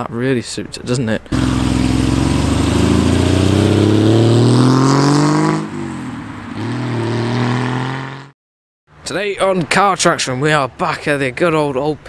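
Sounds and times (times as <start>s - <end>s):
car engine accelerating: 1.3s - 8.3s.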